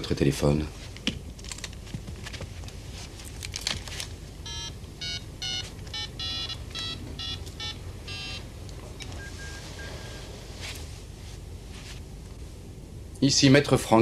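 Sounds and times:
phone keypad beeps: 4.4s - 8.4s, 9.0s - 10.3s.

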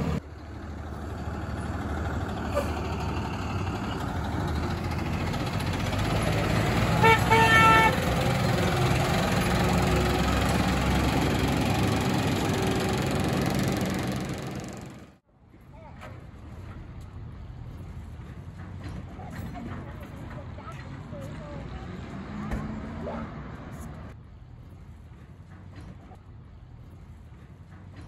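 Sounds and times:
truck engine driving: 0.0s - 15.2s, 16.4s - 28.0s
vehicle horn toots: 6.9s - 8.1s.

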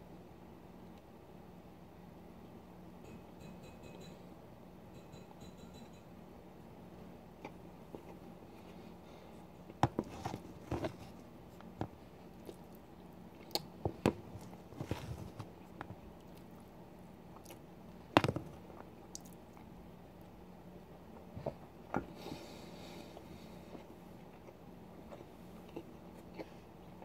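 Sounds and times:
person chewing food: 7.4s - 16.7s, 17.3s - 19.7s, 21.4s - 27.0s.

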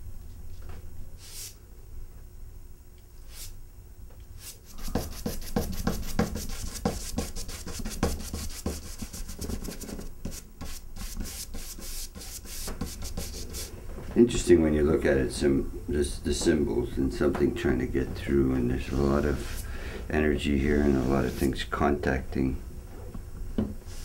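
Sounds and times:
drawing stick scraping on paper: 4.7s - 13.7s.

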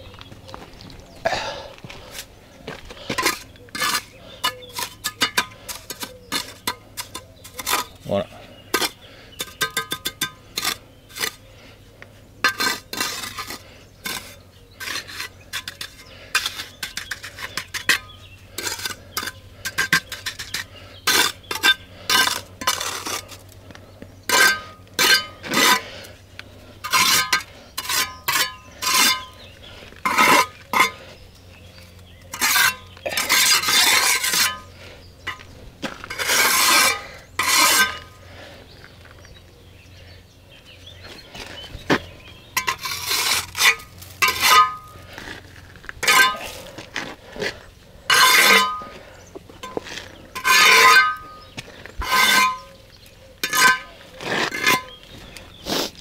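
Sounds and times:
long trowel scraping strokes: 1.8s - 39.1s, 41.0s - 56.0s
trowel scraping and clinking: 3.1s - 8.0s, 8.7s - 11.4s, 12.4s - 23.5s, 24.3s - 25.9s, 26.8s - 31.0s, 31.7s - 38.2s, 42.0s - 49.0s, 49.6s - 56.0s.

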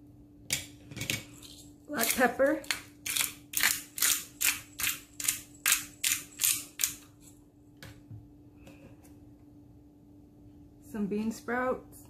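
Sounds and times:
faint steady hum: 0.0s - 12.0s
pepper grinder grinding: 1.2s - 7.3s.

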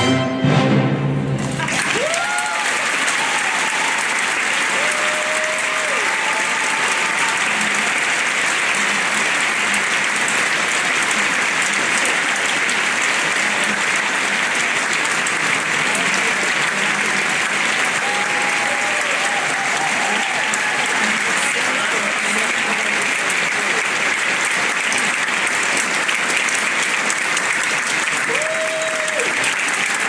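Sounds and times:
audience applauding: 1.4s - 30.0s
cheering whoops: 1.6s - 8.2s, 17.8s - 21.3s, 28.2s - 30.0s.

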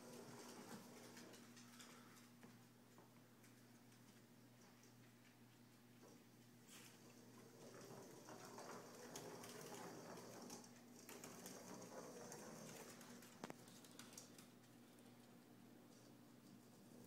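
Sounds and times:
robot ball rolling on wooden floor: 0.0s - 1.5s, 7.0s - 13.9s
dog claws pattering: 12.8s - 14.8s.

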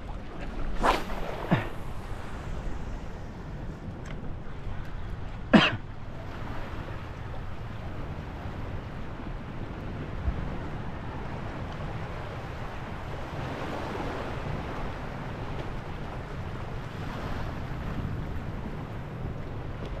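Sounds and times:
small waves lapping: 0.0s - 9.5s
wind buffeting microphone: 0.0s - 20.0s.

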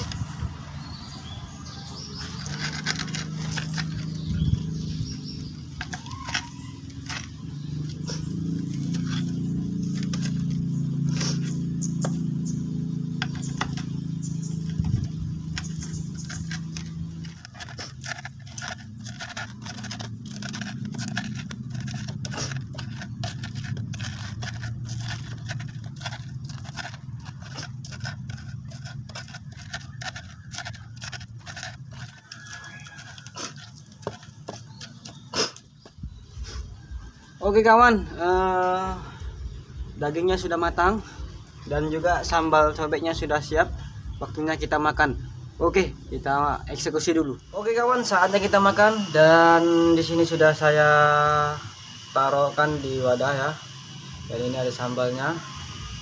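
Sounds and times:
pestle grinding in a mortar: 0.0s - 39.8s, 51.6s - 52.2s.

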